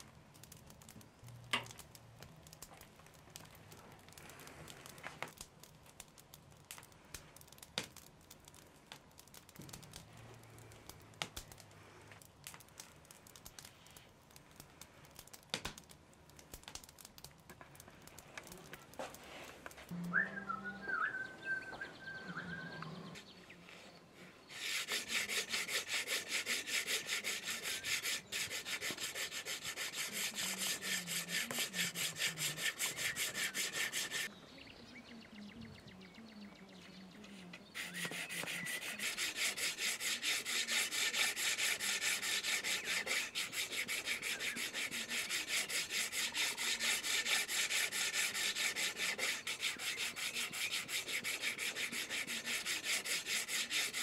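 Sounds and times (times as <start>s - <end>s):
scraping strokes on wood: 24.5s - 34.3s, 37.5s - 54.0s.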